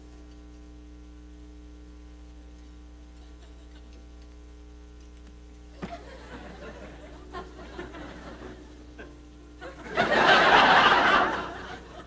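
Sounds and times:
studio audience laughing: 5.8 - 12.0.

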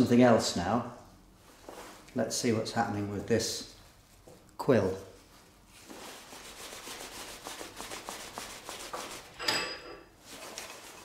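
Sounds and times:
gloved hands rubbing metal: 5.7 - 9.4, 10.2 - 11.0.

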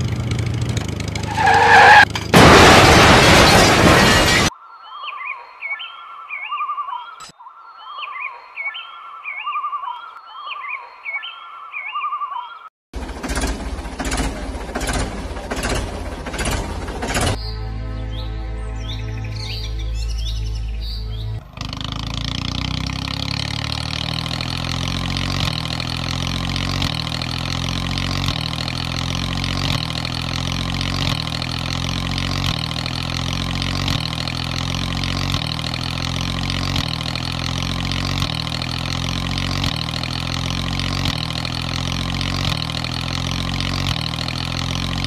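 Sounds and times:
tractor engine running: 0.0 - 4.5, 13.0 - 17.5, 21.1 - 45.0.

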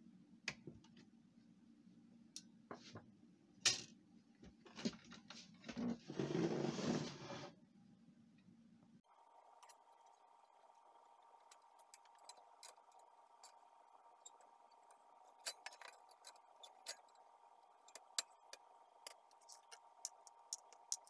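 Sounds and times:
faint steady hum: 7.0 - 21.0.

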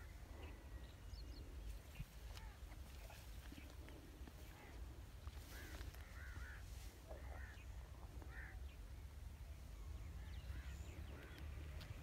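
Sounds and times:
crows cawing: 4.4 - 8.7.

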